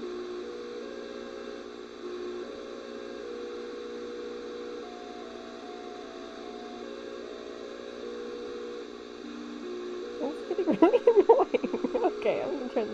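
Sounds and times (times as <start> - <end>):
radio hum and static: 7.2 - 12.9.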